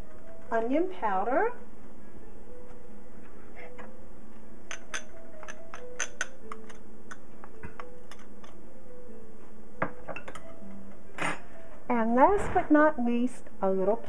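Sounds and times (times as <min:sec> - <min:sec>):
faint background music: 0:00.0 - 0:14.0
spoon and bowl tapping saucepan: 0:04.7 - 0:08.6.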